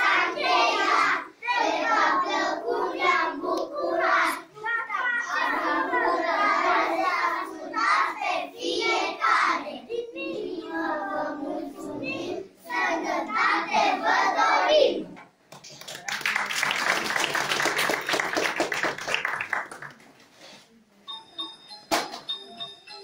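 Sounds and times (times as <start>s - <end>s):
children singing: 0.0s - 4.5s, 5.2s - 15.1s
audience applause: 15.7s - 20.2s.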